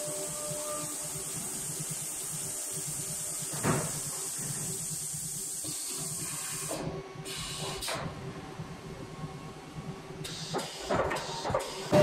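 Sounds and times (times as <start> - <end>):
cnc router high hiss: 0.0 - 7.9.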